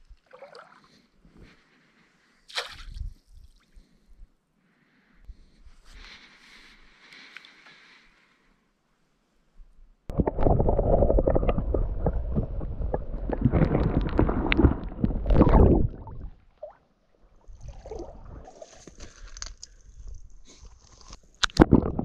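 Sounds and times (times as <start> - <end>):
water sloshing and gurgling: 0.0 - 1.1, 10.1 - 20.2, 20.8 - 22.0
patchy outdoor sound: 0.0 - 22.0.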